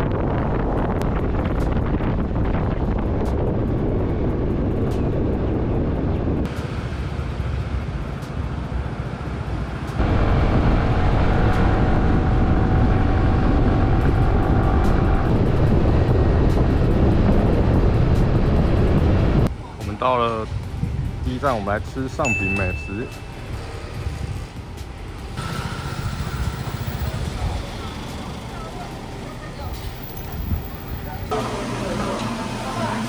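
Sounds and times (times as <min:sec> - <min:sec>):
wind rushing over microphone: 0:00.0 - 0:07.0, 0:10.0 - 0:22.1, 0:23.4 - 0:27.9, 0:29.7 - 0:31.3
scooter engine and road noise: 0:00.0 - 0:33.0.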